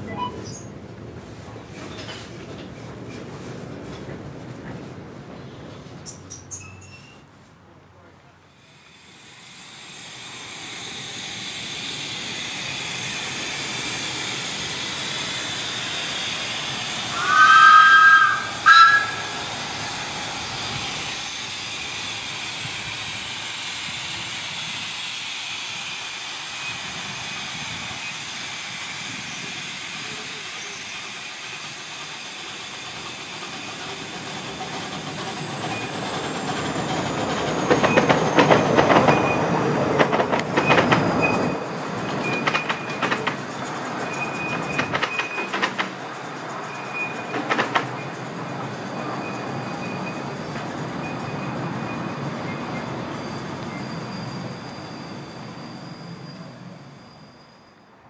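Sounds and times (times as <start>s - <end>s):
train wheels clattering on rail joints: 1.1s - 7.2s, 30.1s - 54.4s
steam locomotive hissing: 8.4s - 58.0s
steam whistle blasts: 17.1s - 19.4s.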